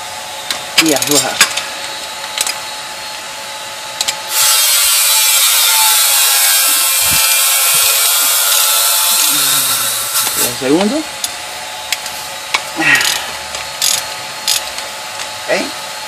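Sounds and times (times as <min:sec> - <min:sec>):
ratchet buzzing: 0:04.0 - 0:15.4
ratchet clicks: 0:11.9 - 0:15.3.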